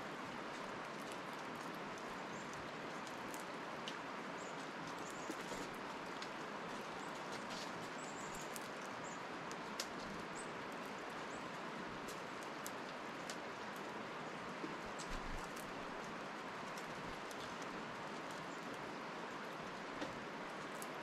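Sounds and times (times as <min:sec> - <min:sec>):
squirrel cracking seeds: 0:00.9 - 0:10.1.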